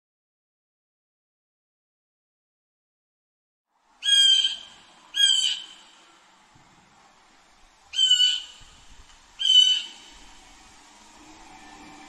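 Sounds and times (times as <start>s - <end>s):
blue jay calling: 4.0s - 6.0s, 7.9s - 10.2s.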